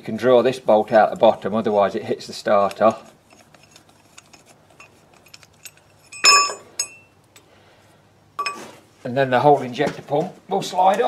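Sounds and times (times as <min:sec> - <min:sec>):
spanner clinking on metal bolts: 0:02.6 - 0:07.1, 0:08.4 - 0:08.6.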